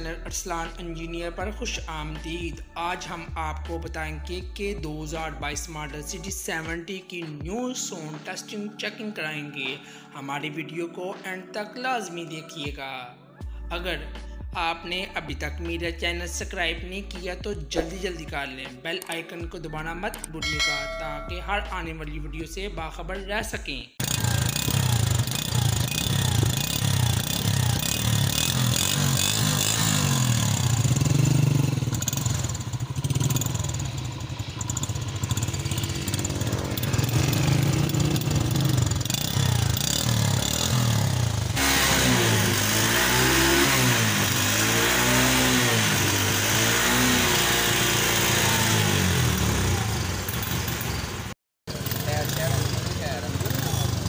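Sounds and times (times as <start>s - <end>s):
motorcycle engine revving: 24.0s - 54.0s.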